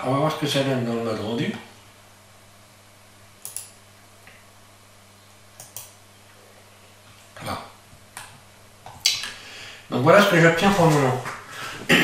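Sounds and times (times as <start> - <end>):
sharp computer clicks: 3.4 - 3.8, 5.6 - 6.0.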